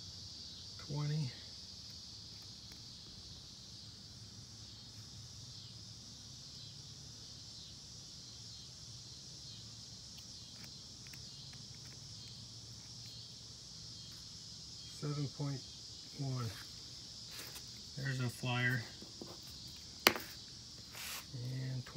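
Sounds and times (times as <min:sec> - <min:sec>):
faint high hiss: 0:09.4 - 0:21.9.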